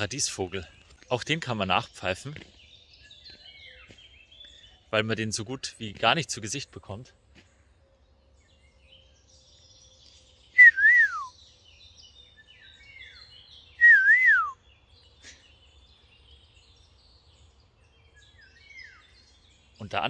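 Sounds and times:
faint bird chirps: 0:00.0 - 0:20.0
man whistling birdsong imitation: 0:10.5 - 0:11.4, 0:13.7 - 0:14.6.

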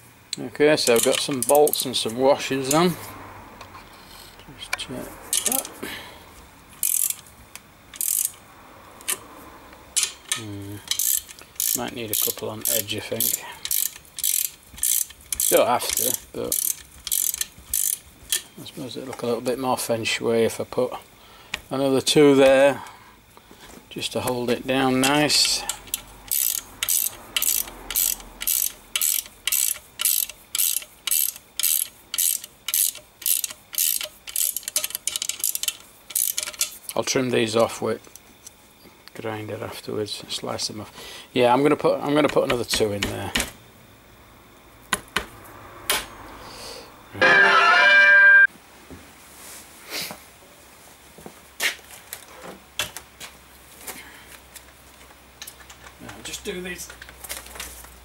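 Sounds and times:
ratchet spanner clicking: 0:00.8 - 0:02.9, 0:04.0 - 0:05.8, 0:06.8 - 0:08.4, 0:10.0 - 0:18.5, 0:25.0 - 0:37.0
music sting: 0:47.2 - 0:48.5.

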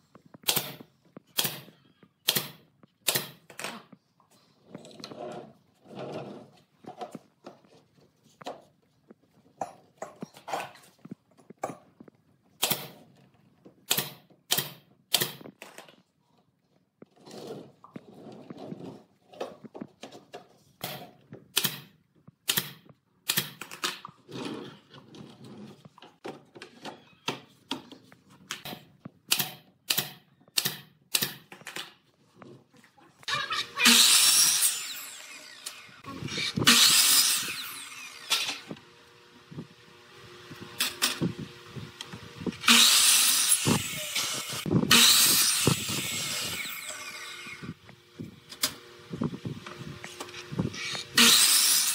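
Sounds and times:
nail gun firing: 0:00.4 - 0:03.6, 0:12.6 - 0:13.0, 0:13.9 - 0:15.5, 0:20.8 - 0:24.0, 0:28.6 - 0:31.9, 0:35.6 - 0:38.7, 0:42.6 - 0:46.7.

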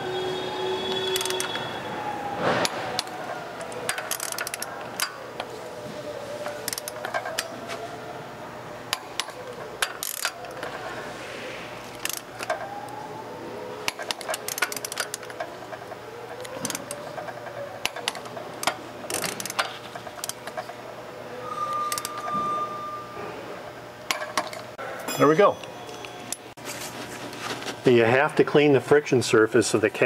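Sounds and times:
torque wrench ratcheting: 0:03.7 - 0:05.1, 0:06.6 - 0:07.5, 0:08.9 - 0:10.6, 0:11.9 - 0:12.6, 0:13.9 - 0:15.4, 0:17.8 - 0:20.6.

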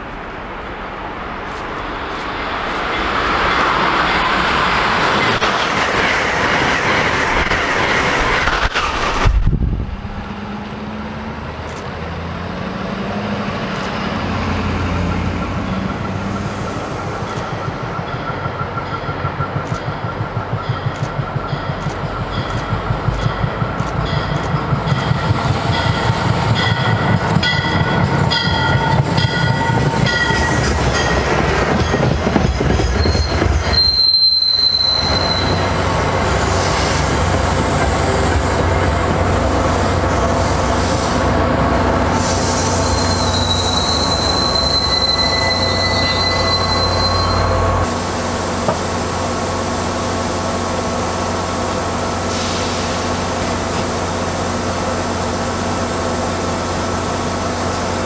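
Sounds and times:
train wheels running on rails: 0:00.0 - 0:58.0
high wheel squeal: 0:32.9 - 0:38.1, 0:42.2 - 0:47.9.

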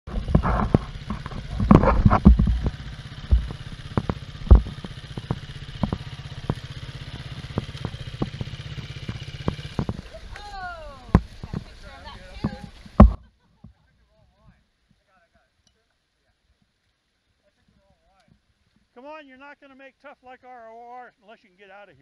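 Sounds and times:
dirt bike engine revving: 0:00.0 - 0:13.2
knocks and clatter: 0:00.1 - 0:10.1, 0:12.4 - 0:13.2.

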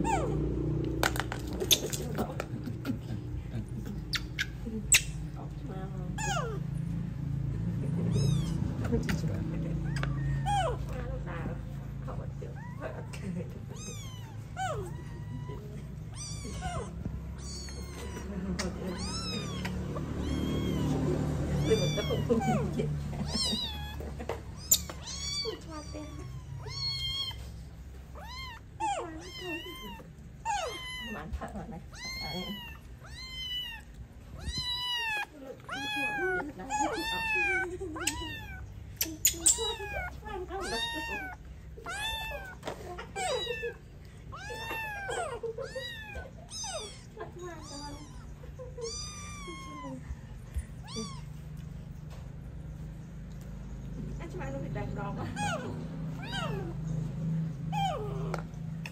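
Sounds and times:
kitten mewing in distress: 0:13.6 - 0:18.3, 0:18.9 - 0:27.5, 0:28.1 - 0:38.7, 0:39.4 - 0:50.2.

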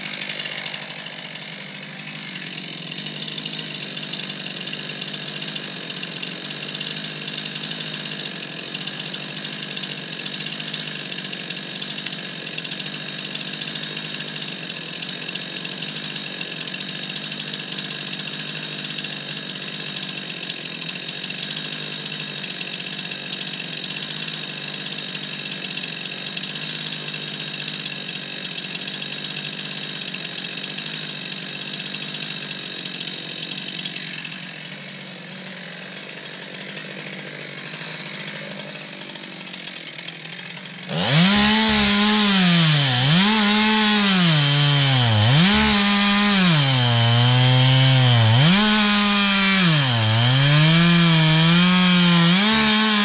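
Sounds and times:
chainsaw idling: 0:00.0 - 0:53.0.

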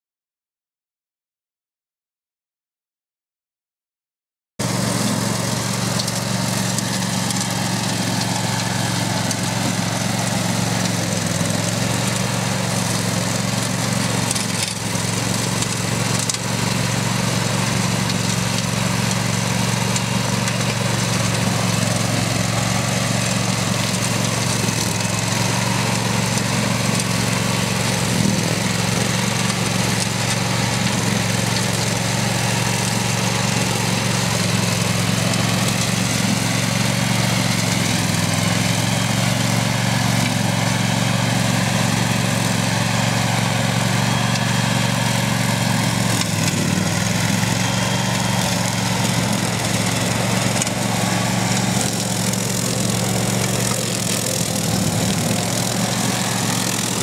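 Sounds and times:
mower cutting dry grass: 0:04.6 - 0:57.0
ride-on mower engine hum: 0:04.6 - 0:57.0.

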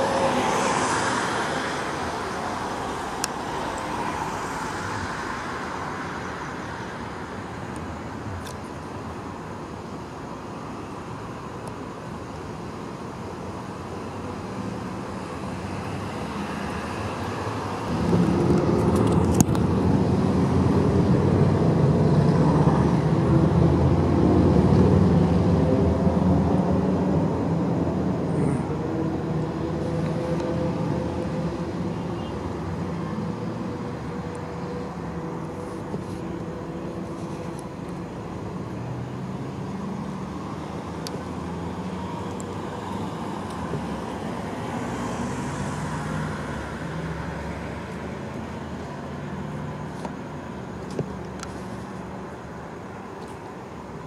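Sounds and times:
vehicle engines running: 0:16.9 - 0:54.0
loud engine: 0:17.3 - 0:35.4.

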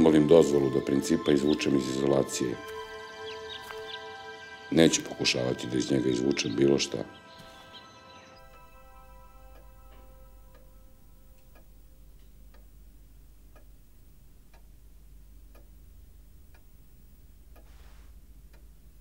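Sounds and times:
low steady hum: 0:00.0 - 0:19.0
clock ticking: 0:08.4 - 0:19.0.

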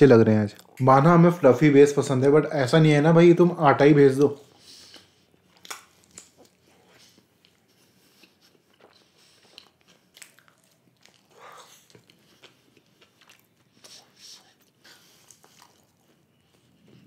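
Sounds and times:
man chewing pizza: 0:04.2 - 0:17.0.

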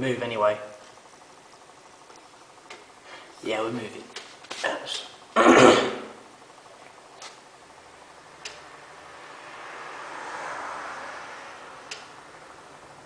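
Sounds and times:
person clearing throat: 0:05.4 - 0:06.2.

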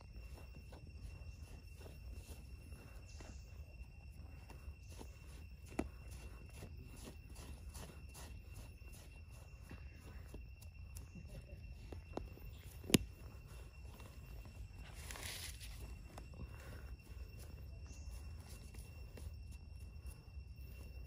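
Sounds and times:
hands scraping dry soil: 0:00.0 - 0:21.0
high-pitched insect call: 0:00.0 - 0:21.0.

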